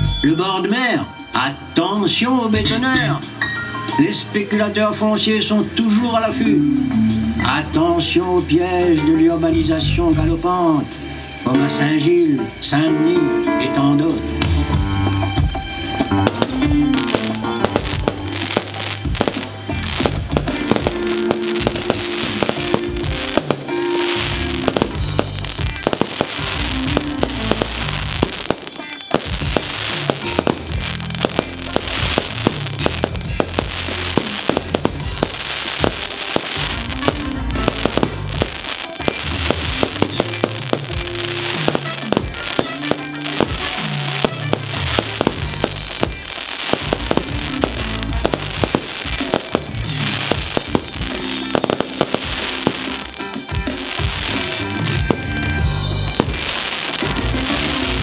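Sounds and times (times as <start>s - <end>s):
loud show music: 0.0s - 58.0s
fireworks bursting and crackling: 14.3s - 58.0s.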